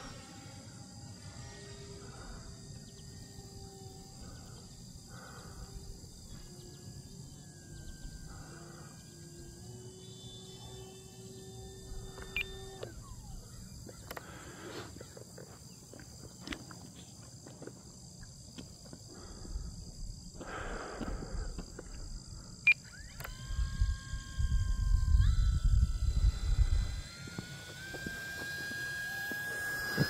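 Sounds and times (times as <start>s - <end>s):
electric motor whining: 0.0s - 16.7s, 20.4s - 30.0s
insect chirring: 0.0s - 30.0s
wind rumble on microphone: 23.4s - 27.1s.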